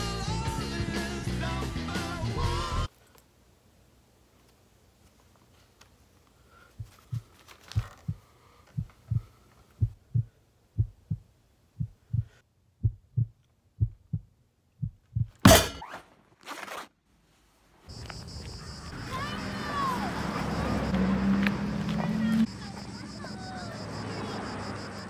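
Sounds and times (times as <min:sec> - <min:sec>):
heartbeat thumps: 0:06.7 - 0:15.7.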